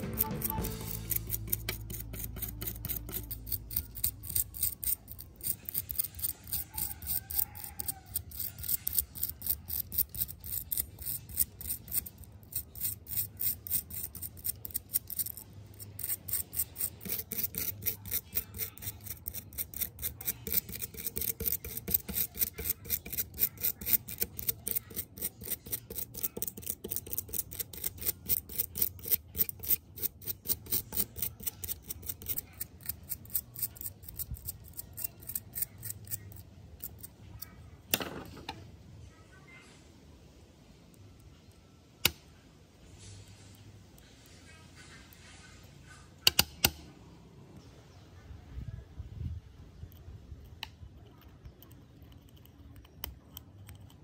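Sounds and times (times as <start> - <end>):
stiff brush scrubbing metal: 0.0 - 36.4.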